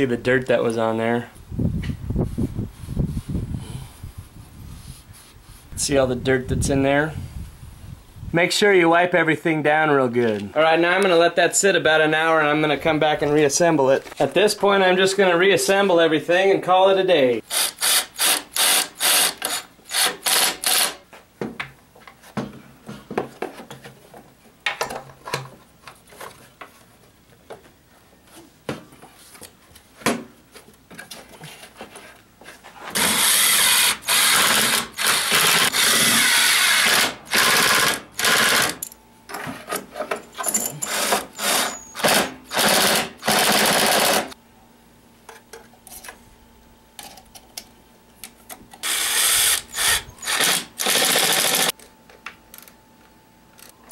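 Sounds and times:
drill driving bolts: 0:17.5 - 0:21.0, 0:33.0 - 0:38.8, 0:40.4 - 0:44.4, 0:48.8 - 0:51.7.

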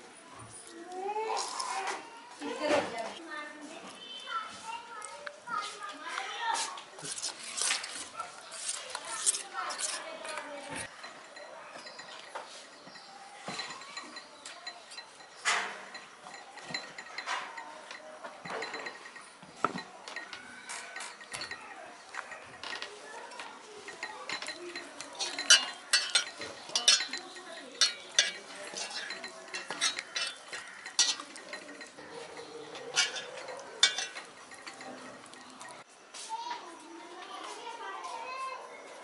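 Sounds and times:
steel bowl clinking and knocking: 0:10.8 - 0:35.9.

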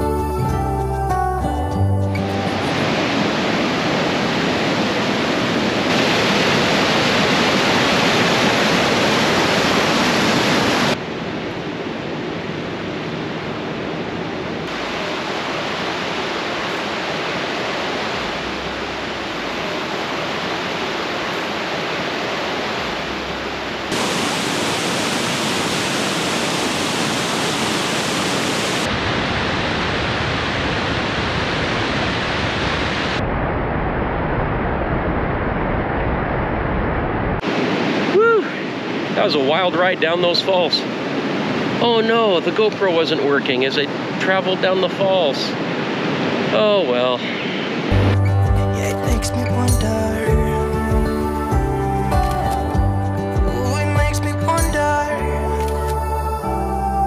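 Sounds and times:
river rushing over rocks: 0:02.2 - 0:11.5, 0:14.5 - 0:33.2.

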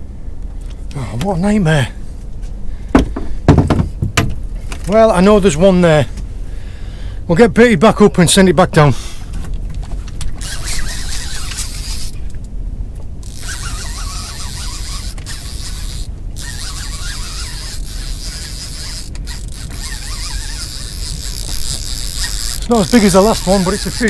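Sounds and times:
fishing reel winding: 0:10.4 - 0:12.2, 0:13.2 - 0:24.0.

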